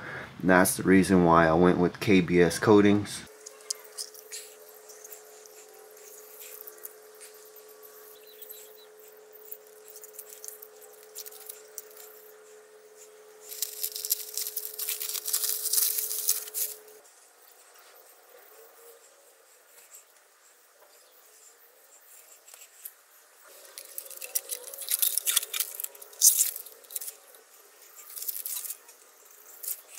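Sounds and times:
steady hum: 0.0 - 29.9
crackling rustle: 3.3 - 29.9
faint ticks and rustles: 3.3 - 29.9.

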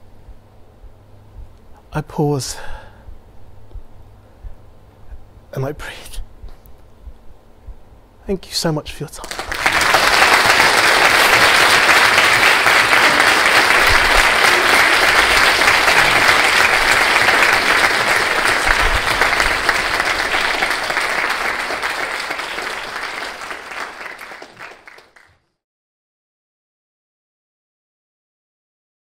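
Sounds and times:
audience applauding: 9.2 - 25.4.

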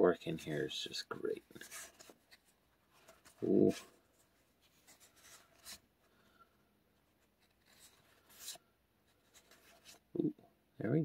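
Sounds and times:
trading cards sliding and rubbing: 1.5 - 10.1.

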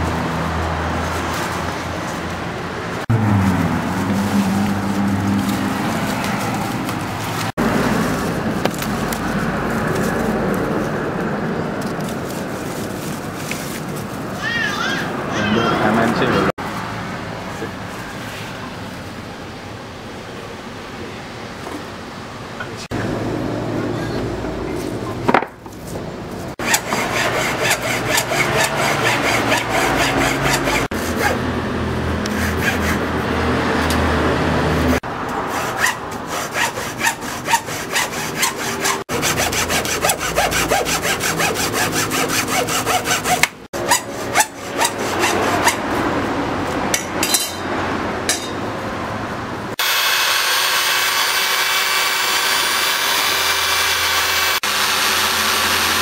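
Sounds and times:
hand tool rasping corn cob: 26.6 - 31.4, 32.2 - 33.1, 35.3 - 46.0
electric drill running: 49.8 - 56.0.

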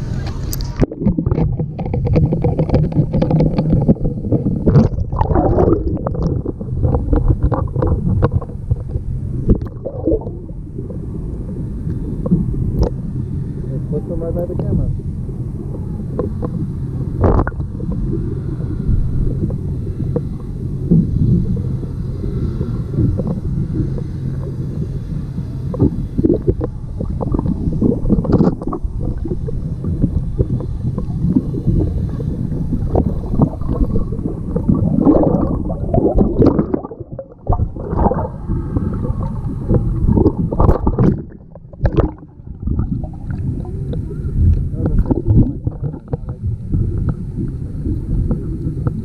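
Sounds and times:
underwater rumble of moving water: 0.0 - 49.0
fish bumping camera: 0.6 - 8.9.

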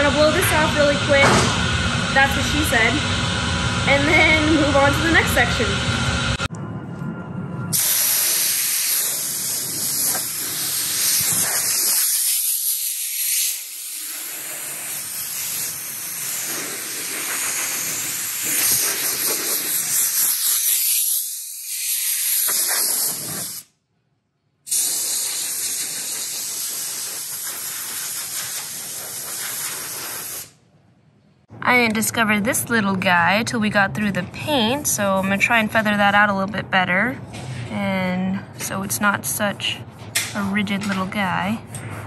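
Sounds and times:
compressed air blow gun hissing: 7.7 - 23.7, 24.7 - 30.6.

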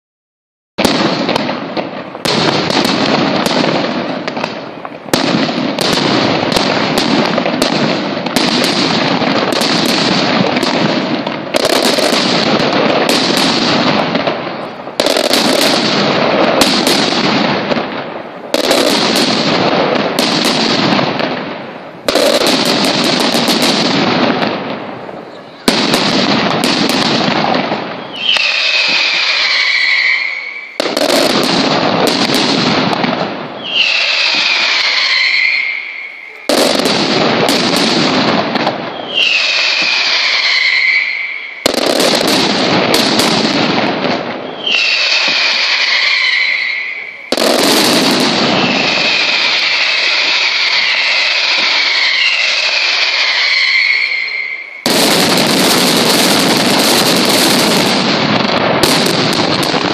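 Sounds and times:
firecracker bangs: 0.8 - 59.9
shrill whistles sliding down: 28.1 - 30.7, 33.6 - 36.3, 39.0 - 41.5, 44.6 - 47.0, 50.6 - 54.8.

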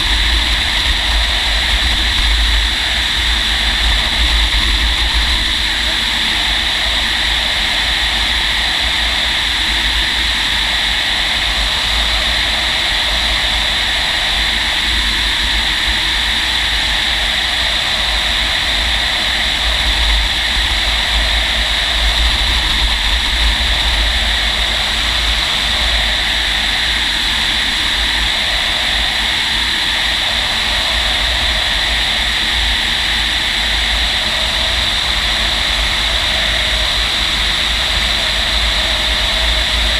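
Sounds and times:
low buffeting rumble: 0.0 - 9.2, 17.2 - 39.9.

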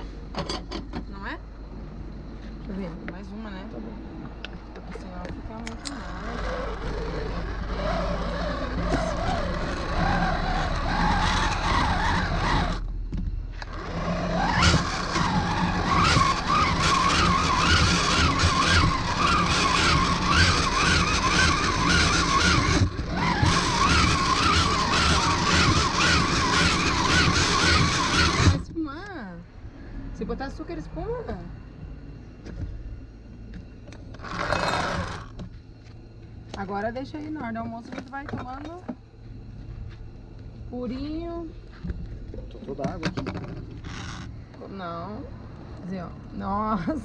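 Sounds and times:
blender running: 5.8 - 12.8, 13.6 - 28.6, 34.2 - 35.3.

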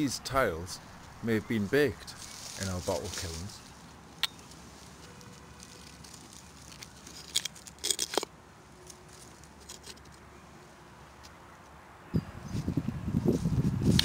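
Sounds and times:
faint rustling: 2.0 - 8.1
crunching and scraping: 2.0 - 10.2.

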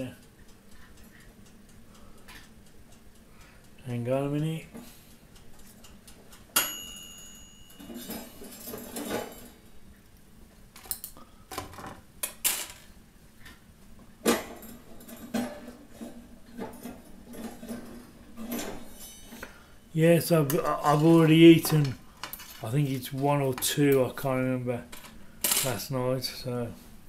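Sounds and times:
metal spoon clinking on skewers: 6.6 - 9.4.

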